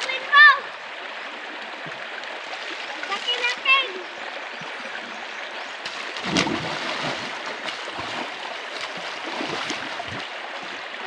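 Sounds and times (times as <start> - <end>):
creek water over stones: 0.0 - 11.0
splashes in water: 5.7 - 11.0.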